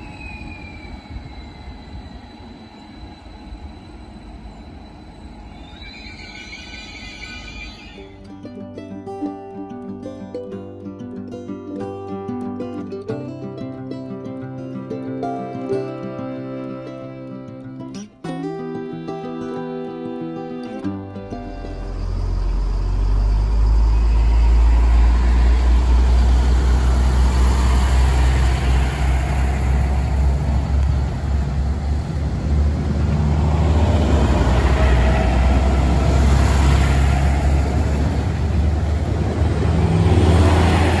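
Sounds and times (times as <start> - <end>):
diesel train engine drone: 0.0 - 8.4, 21.0 - 41.0
wheels rumbling on track: 21.1 - 41.0.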